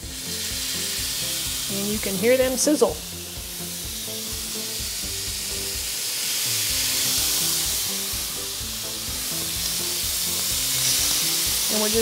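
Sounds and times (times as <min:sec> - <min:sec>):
kabobs sizzling on grill pans: 0:00.0 - 0:12.0.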